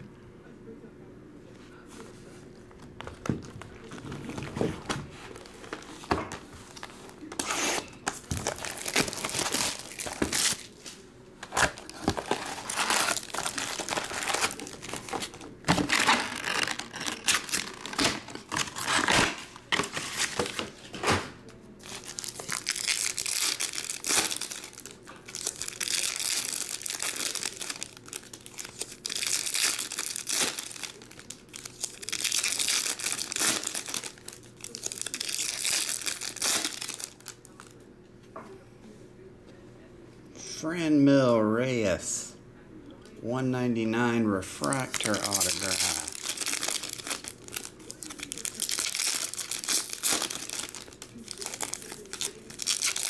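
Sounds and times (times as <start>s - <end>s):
foil wrappers tearing and crinkling: 3.4s - 21.1s, 21.8s - 37.7s, 44.6s - 53.0s.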